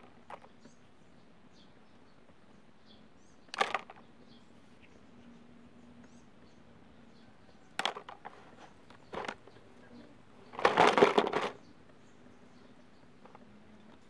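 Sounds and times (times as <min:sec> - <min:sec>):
plastic toy dishes clattering: 0:03.6 - 0:04.0, 0:07.8 - 0:08.4, 0:09.1 - 0:09.4, 0:10.5 - 0:11.6.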